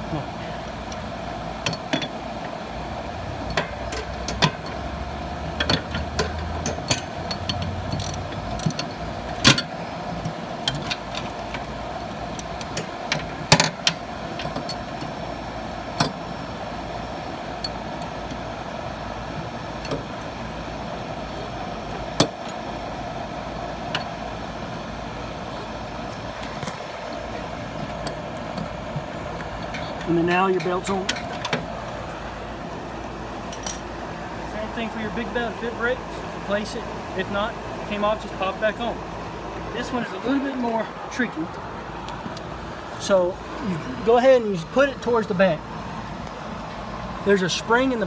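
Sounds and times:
background hum: 0.0s - 48.0s.

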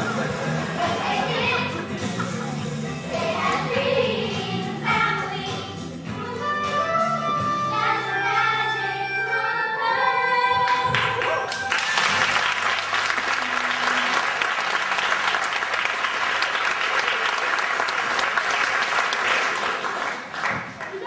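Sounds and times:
children singing: 0.0s - 11.2s
musical accompaniment: 0.0s - 16.9s
audience applause: 10.9s - 21.0s.

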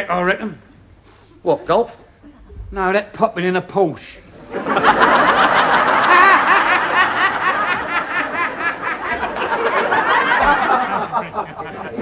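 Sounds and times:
audience laughing: 4.3s - 12.0s
people laughing: 4.3s - 12.0s.

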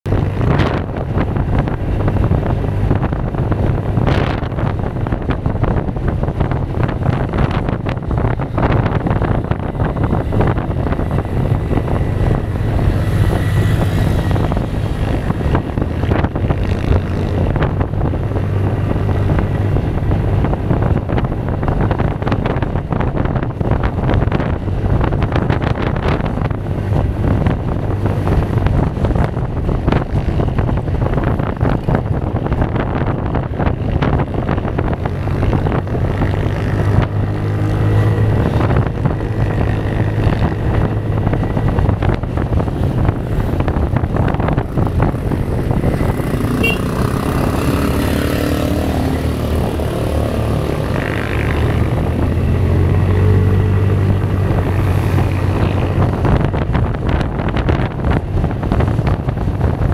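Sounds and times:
wind gusting over microphone: 0.0s - 59.9s
scooter engine running: 38.4s - 51.5s.

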